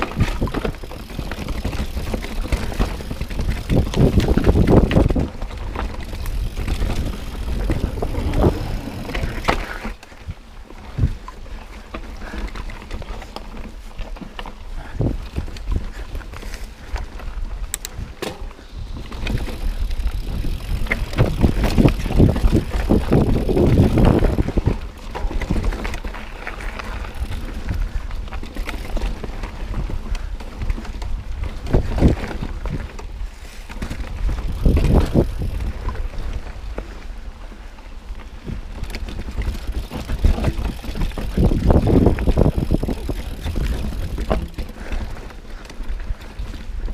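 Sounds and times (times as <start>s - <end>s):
bike clattering over bumps: 0.0s - 10.2s, 11.8s - 37.0s, 38.3s - 46.9s
tyres crunching over dirt and rocks: 38.1s - 46.7s.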